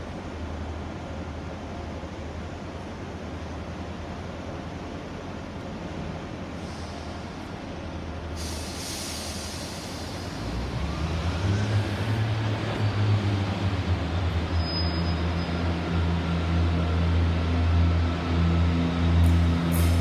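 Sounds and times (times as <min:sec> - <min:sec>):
diesel train engine drone: 0:00.0 - 0:20.0
hiss: 0:06.6 - 0:07.5, 0:08.3 - 0:10.6, 0:19.3 - 0:20.0.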